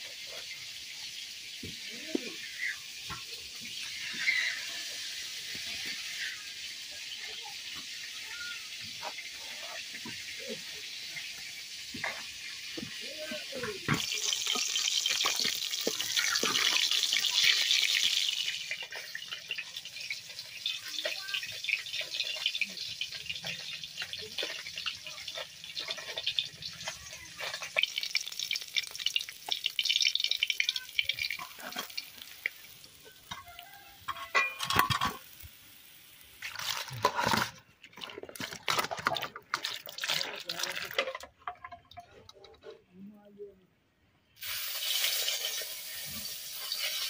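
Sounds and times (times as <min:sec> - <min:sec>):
fish sizzling in oil: 0:00.0 - 0:41.7, 0:44.3 - 0:47.0
water splashing in steel bowl: 0:09.0 - 0:35.6, 0:36.3 - 0:42.4
spatula scraping wok: 0:13.9 - 0:27.8, 0:44.5 - 0:47.0.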